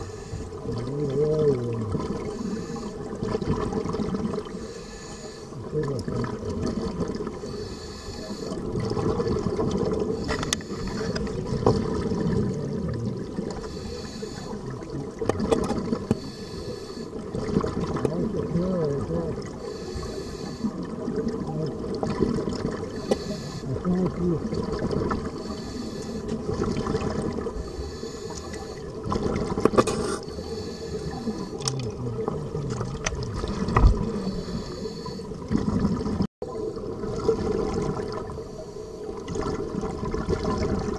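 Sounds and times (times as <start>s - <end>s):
regulator breathing underwater: 0.0s - 0.7s, 2.2s - 3.2s, 4.4s - 5.7s, 7.4s - 8.7s, 10.0s - 11.3s, 13.6s - 14.8s, 16.0s - 17.2s, 19.5s - 21.0s, 22.9s - 23.9s, 25.3s - 26.5s, 27.4s - 29.0s, 29.8s - 31.8s, 33.4s - 35.5s, 38.4s - 39.2s
exhaled bubbles bursting: 0.0s - 4.6s, 5.6s - 7.5s, 8.5s - 13.7s, 14.4s - 16.2s, 17.1s - 19.7s, 20.6s - 27.7s, 28.6s - 38.5s, 39.1s - 40.9s
low water wash: 0.0s - 40.9s.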